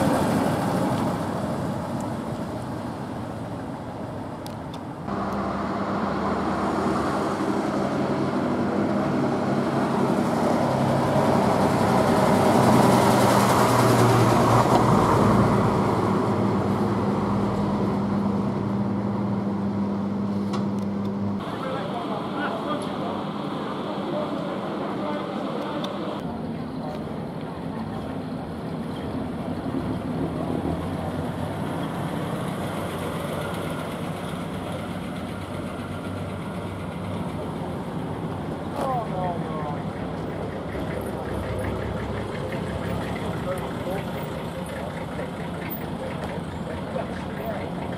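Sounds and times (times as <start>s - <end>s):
bus engine driving past: 0.0s - 47.9s.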